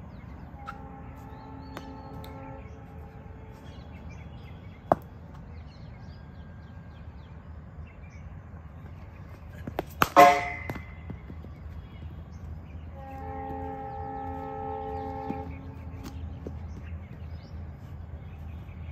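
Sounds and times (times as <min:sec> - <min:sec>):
cricket bat striking ball: 0:04.9 - 0:05.1, 0:09.6 - 0:11.2.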